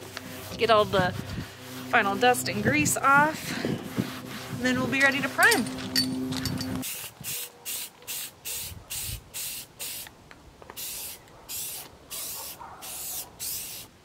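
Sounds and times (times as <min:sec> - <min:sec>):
low hum: 0:00.0 - 0:06.8
aerosol spray bursts: 0:06.8 - 0:10.0, 0:10.8 - 0:13.9.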